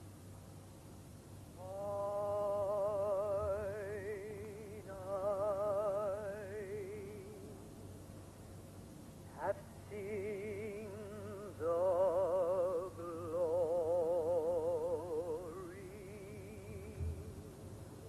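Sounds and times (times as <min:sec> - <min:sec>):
person singing operatically: 0:01.6 - 0:07.7, 0:09.3 - 0:17.6.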